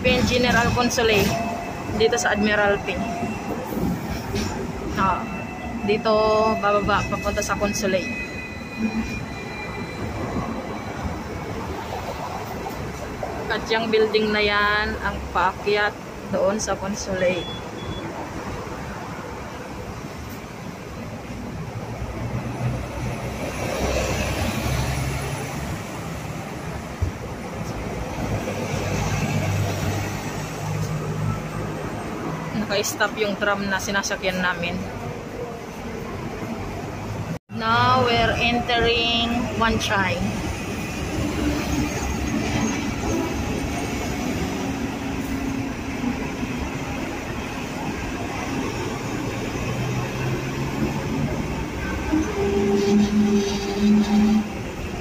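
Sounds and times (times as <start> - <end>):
street traffic: 0.0 - 55.0
tram humming: 0.0 - 55.0.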